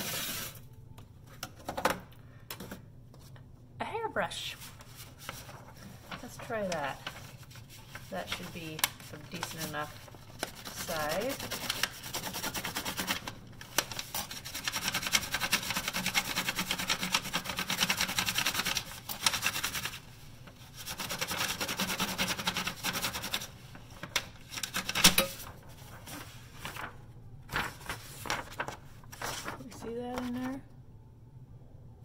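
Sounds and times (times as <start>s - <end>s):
scratching on paper over brush: 4.6s - 23.6s, 27.5s - 30.6s.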